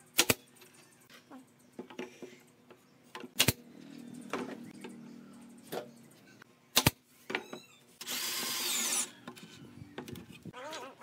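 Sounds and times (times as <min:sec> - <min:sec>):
nail gun firing into wood: 0:00.2 - 0:00.4, 0:03.4 - 0:03.6, 0:06.7 - 0:07.0.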